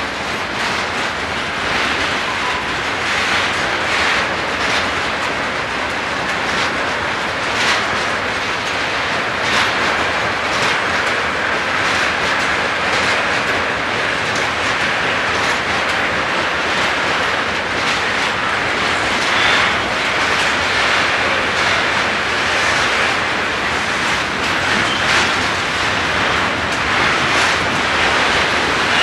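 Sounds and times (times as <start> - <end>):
train wheels rumbling on rail: 0.0 - 29.0
wheels clicking over rail joints: 0.0 - 29.0.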